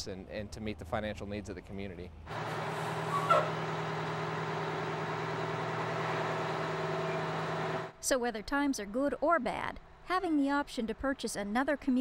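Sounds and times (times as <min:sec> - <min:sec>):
fire truck engine running: 0:02.3 - 0:07.9
brief squeak: 0:03.0 - 0:03.6.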